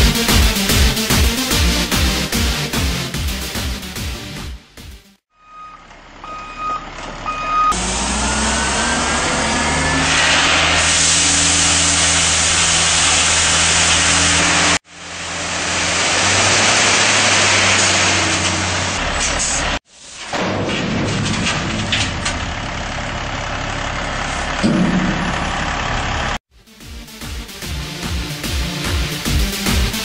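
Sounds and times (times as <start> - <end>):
heavy truck engine running: 0.0 - 19.8, 20.4 - 30.0
truck reversing alarm beeps: 5.3 - 10.1.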